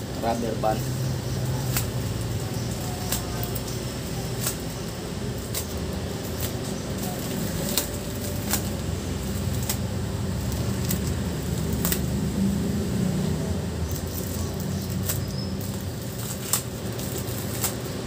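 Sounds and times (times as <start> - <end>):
steady low hum: 0.0 - 18.0
plastic crinkling: 0.7 - 12.4, 13.3 - 18.0
rubber bands snapping: 4.4 - 4.7, 7.2 - 8.9, 10.5 - 12.2, 13.9 - 17.8.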